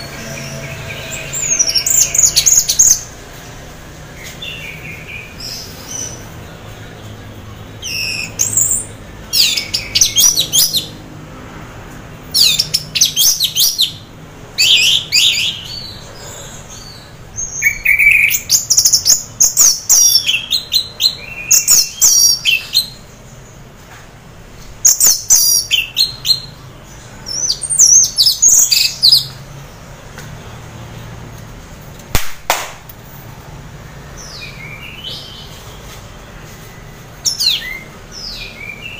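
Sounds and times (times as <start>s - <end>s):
thrush singing: 0.0s - 11.0s.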